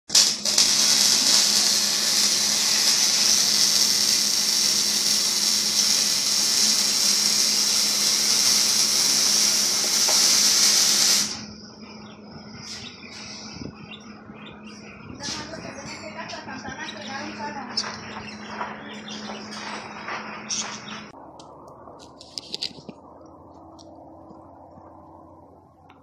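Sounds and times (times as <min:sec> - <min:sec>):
plasma cutter hissing: 0:00.1 - 0:11.5
low electrical hum: 0:10.8 - 0:26.0.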